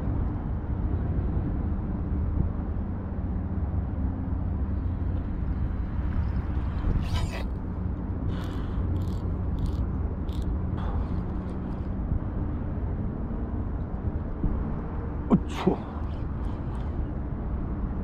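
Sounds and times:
steady low rumble: 0:00.0 - 0:18.0
reel clicks: 0:08.3 - 0:11.9.

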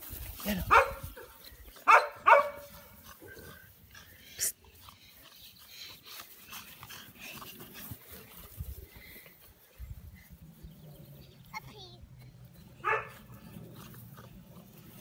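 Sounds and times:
puppy barking: 0:00.7 - 0:02.8, 0:12.8 - 0:13.2.

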